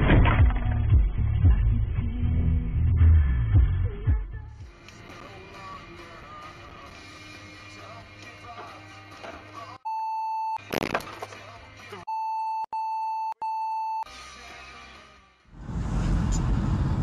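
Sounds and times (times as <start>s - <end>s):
music playing: 0.4s - 9.8s.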